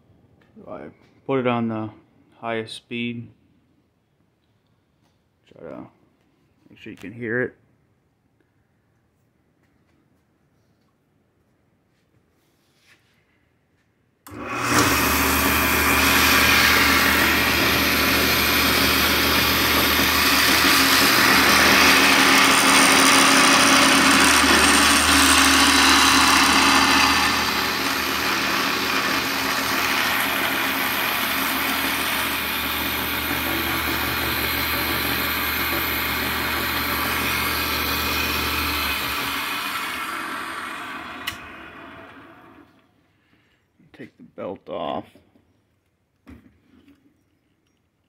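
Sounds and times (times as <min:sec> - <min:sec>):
drill press motor hum: 0:14.3 - 0:42.8.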